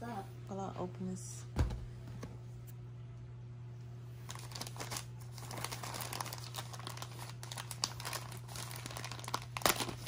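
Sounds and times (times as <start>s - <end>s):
steady low hum: 0.0s - 10.0s
plastic mailer crinkling: 4.2s - 10.0s.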